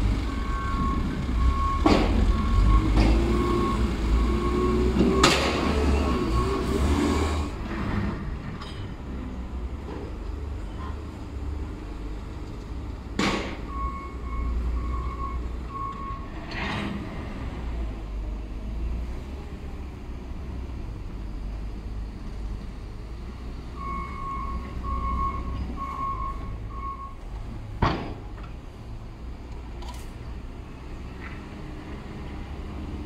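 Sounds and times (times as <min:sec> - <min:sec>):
diesel engine rumbling: 0:00.0 - 0:33.0
backup alarm beeping: 0:13.7 - 0:16.3.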